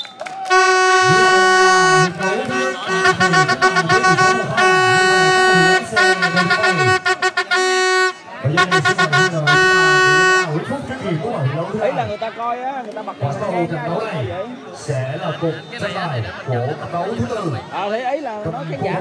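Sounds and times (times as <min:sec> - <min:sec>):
horn blasts and toots: 0:00.4 - 0:10.7
voices: 0:00.5 - 0:19.0.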